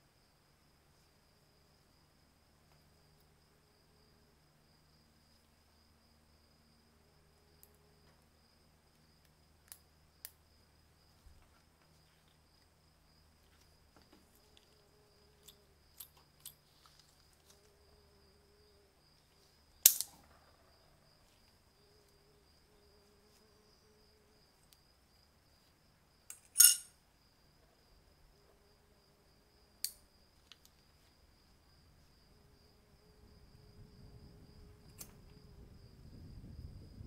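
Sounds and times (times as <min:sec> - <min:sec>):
handling small metal parts: 0:26.3 - 0:26.9.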